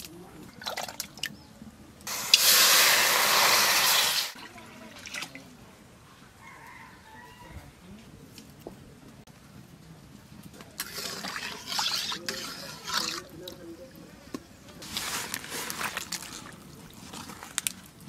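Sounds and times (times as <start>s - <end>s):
water pouring and splashing: 2.1s - 5.6s, 10.8s - 13.6s, 14.8s - 18.0s.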